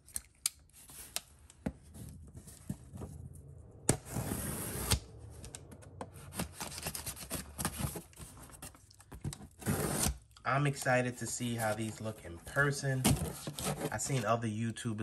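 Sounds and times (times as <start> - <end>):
knife scraping through packing tape: 9.6 - 10.2.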